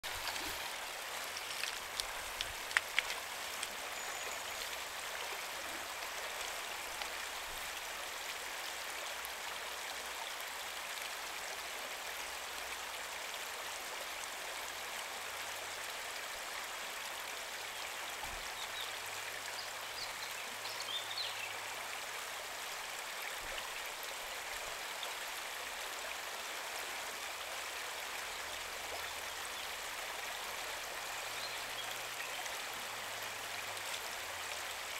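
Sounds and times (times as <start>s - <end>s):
river rushing over gravel: 0.0s - 8.6s.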